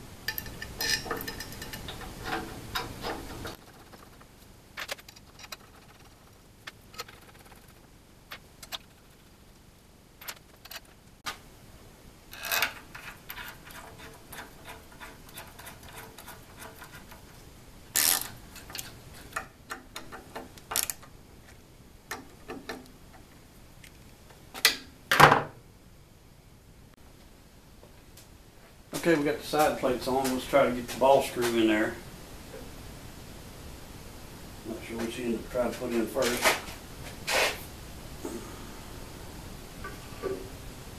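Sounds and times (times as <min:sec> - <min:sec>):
metal plate clacks: 0:00.3 - 0:04.2.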